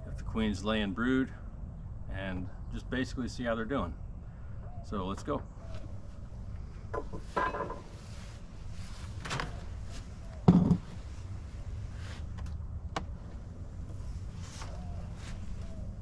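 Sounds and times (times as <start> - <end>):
heavy thump of block set down: 10.5 - 10.9.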